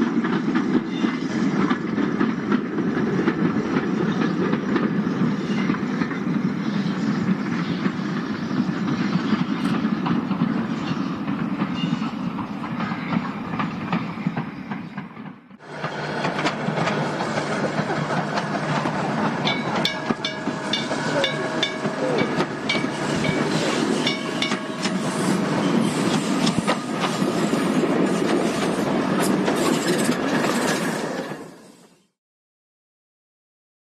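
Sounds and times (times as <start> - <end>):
coaches rumbling on rails: 0.0 - 32.0
steam locomotive exhaust: 1.4 - 32.2
wheel clicks over rail joints: 14.4 - 25.1.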